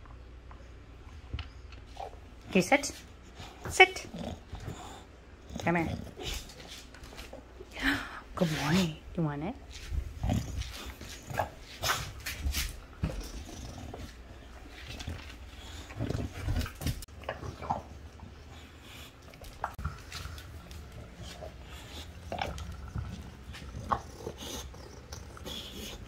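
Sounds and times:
dog grunting: 3.5s - 6.6s, 10.1s - 12.1s, 13.0s - 14.6s, 19.7s - 26.0s.

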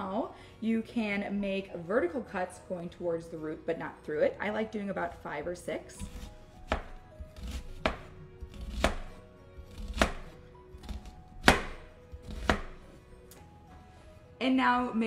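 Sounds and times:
knife cutting onion on cutting board: 5.9s - 13.0s.

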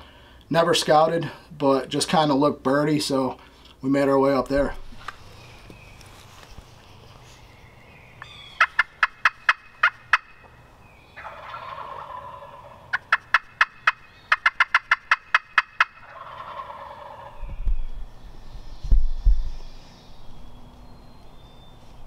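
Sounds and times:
turkey gobble: 8.2s - 10.5s, 11.1s - 17.4s
turkeys yelping: 8.2s - 17.6s.

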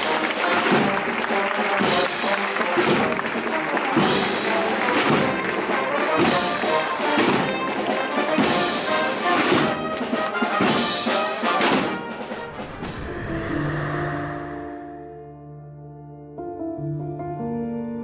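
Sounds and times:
wind band playing a march: 0.0s - 12.6s.

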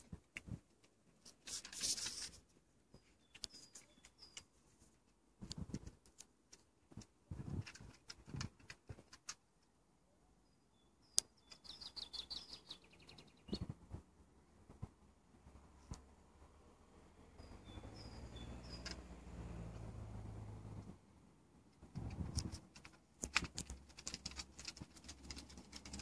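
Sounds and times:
songbird chirping: 2.2s - 5.2s, 9.3s - 13.9s, 15.6s - 20.9s.

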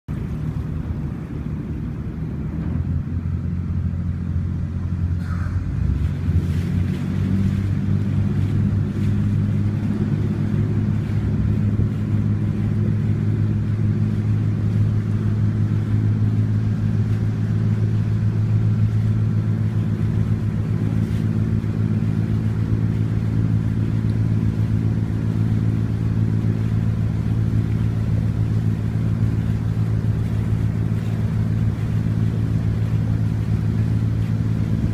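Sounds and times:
ferry engine drone: 0.1s - 34.9s.

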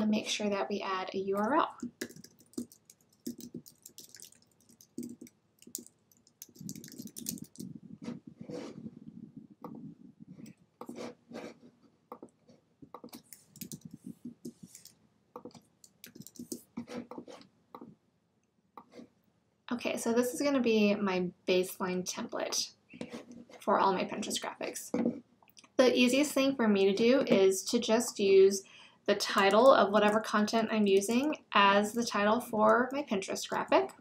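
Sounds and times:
keyboard typing: 1.4s - 7.8s, 12.1s - 17.9s.

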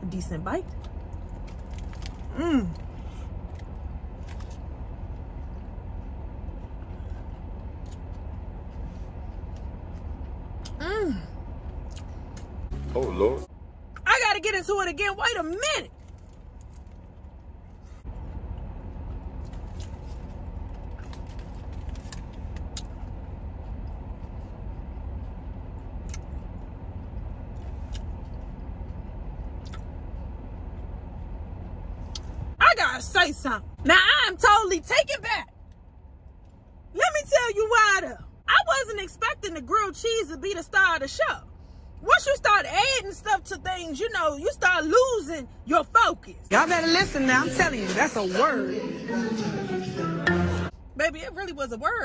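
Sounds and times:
low rumble in car cabin: 0.0s - 48.0s, 50.7s - 52.0s
chewing clicks: 11.6s - 12.5s, 18.5s - 30.0s.

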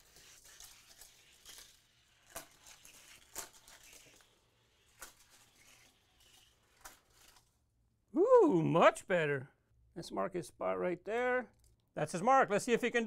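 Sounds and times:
toy car rattling along plastic track: 0.0s - 7.6s.

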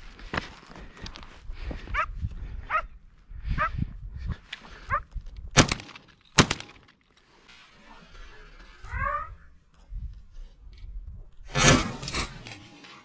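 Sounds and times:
sharp cracks: 5.5s - 7.1s.

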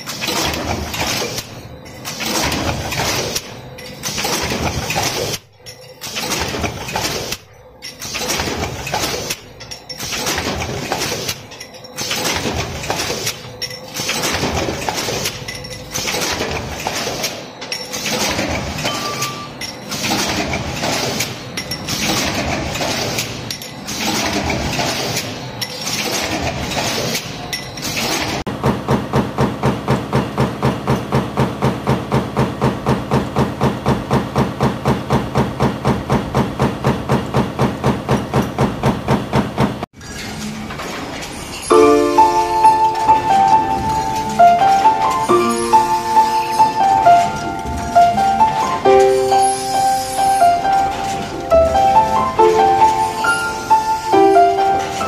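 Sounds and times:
high-speed press stamping: 0.0s - 39.9s
stamping press clanking: 0.0s - 39.9s.

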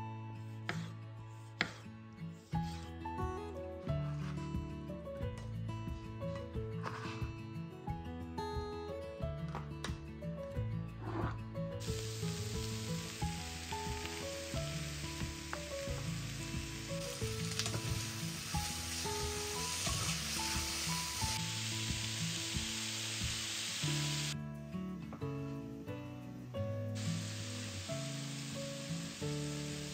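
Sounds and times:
background music melody: 0.0s - 29.9s
food sizzling in a frying pan: 11.8s - 24.4s, 27.0s - 29.9s.

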